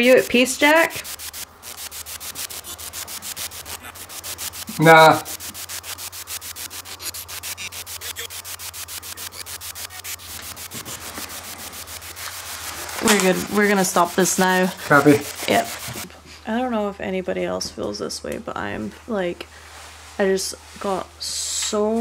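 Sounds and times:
choppy pulsing radio static: 0.0 - 16.0.

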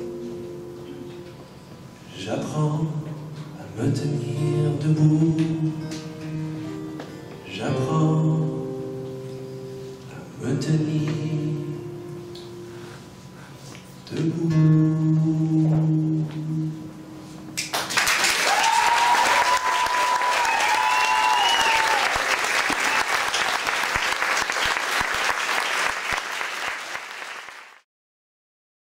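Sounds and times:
audience applause: 17.7 - 27.8
crowd whistling: 18.4 - 23.4.

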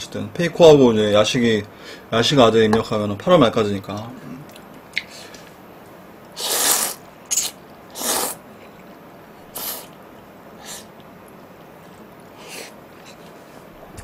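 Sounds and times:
noodles being slurped: 6.3 - 8.9.

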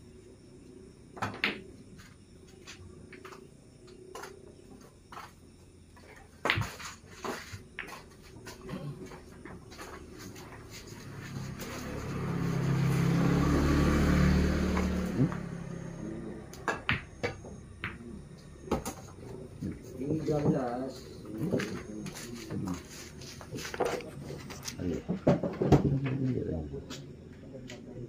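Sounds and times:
pool balls clicking: 5.9 - 10.9
engine: 10.8 - 19.4, 22.6 - 28.0.

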